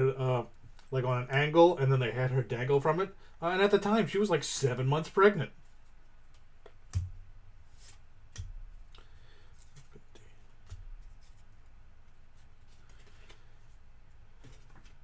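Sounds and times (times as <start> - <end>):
cards rustling: 12.3 - 15.0.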